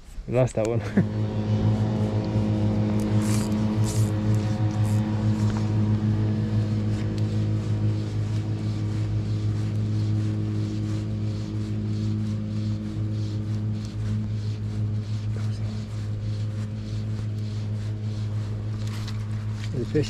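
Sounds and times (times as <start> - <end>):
low mechanical motor hum: 0.0 - 20.0.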